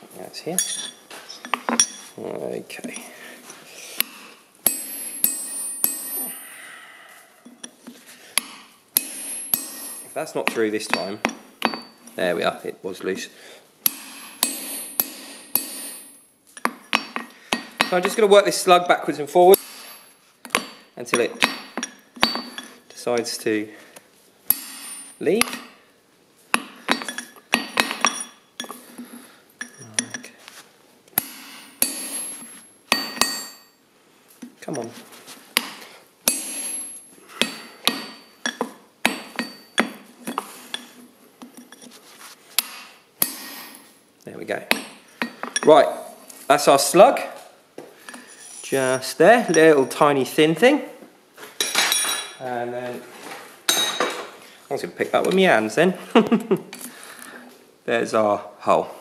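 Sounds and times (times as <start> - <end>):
hammer striking steel punch: 4.6 - 6.5, 8.4 - 10.2, 13.8 - 16.2, 20.5 - 22.7, 24.5 - 25.8, 31.2 - 33.6, 35.6 - 40.0.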